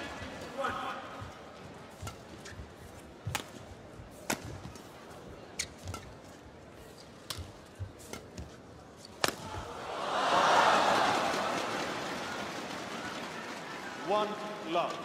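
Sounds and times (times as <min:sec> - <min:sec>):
rackets hitting shuttlecock: 0:01.9 - 0:04.9, 0:05.6 - 0:06.3, 0:07.2 - 0:09.8
crowd cheering: 0:09.4 - 0:14.7.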